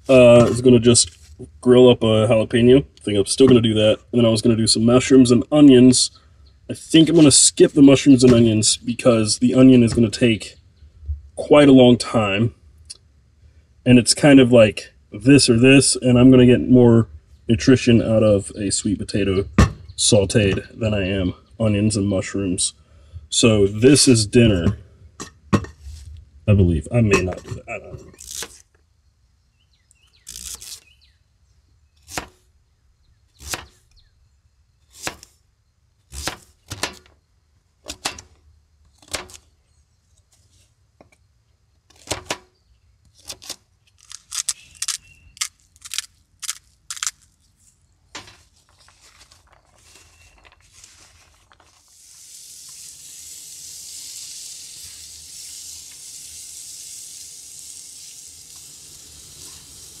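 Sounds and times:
food sizzling on griddle: 51.8 - 60.0.

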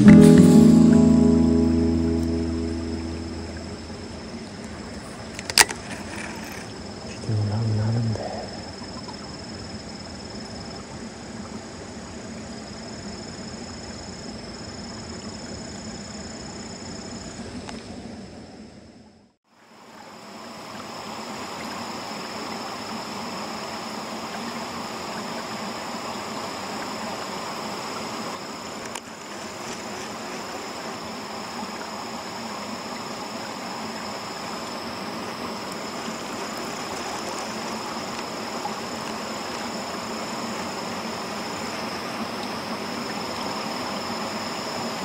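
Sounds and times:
running water rushing: 19.8 - 45.0.

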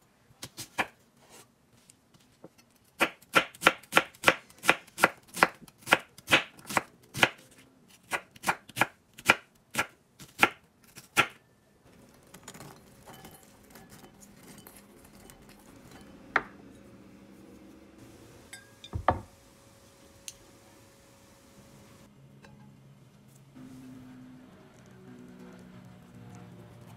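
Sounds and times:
knife chopping onion on board: 3.0 - 7.4.

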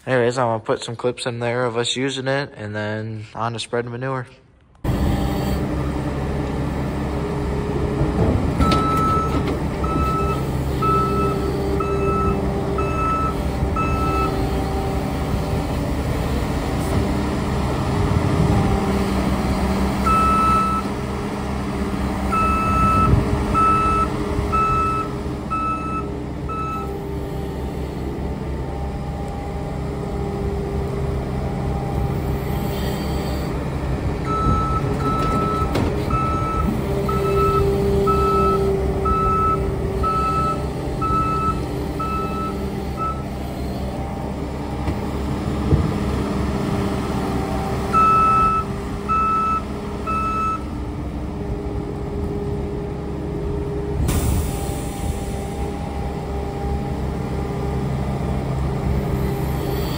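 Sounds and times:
loader diesel engine working: 4.6 - 59.9
loader bucket clunks: 7.7 - 14.7, 15.3 - 21.0, 33.6 - 43.4, 44.1 - 50.7
backup alarm beeping: 8.6 - 14.4, 22.3 - 26.9, 34.3 - 43.3, 48.0 - 50.7.

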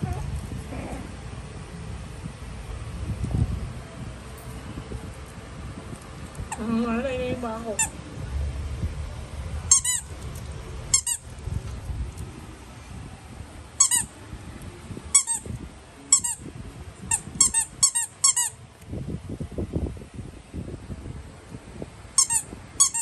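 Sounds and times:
squeaky dog toy squeaking: 9.7 - 10.1, 10.9 - 11.2, 13.8 - 14.1, 15.1 - 15.5, 16.1 - 16.4, 17.1 - 18.6, 22.2 - 23.0.

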